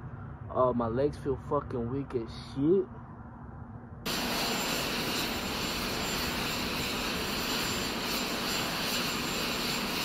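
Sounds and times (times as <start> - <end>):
jet aircraft roar: 4.0 - 10.0
faint high whine: 4.1 - 10.0.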